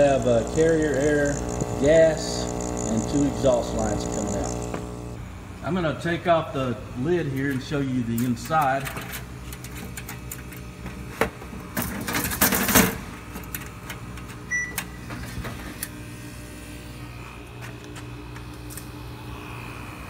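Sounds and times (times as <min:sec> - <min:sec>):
metal scraping and rustling: 0:07.3 - 0:15.8.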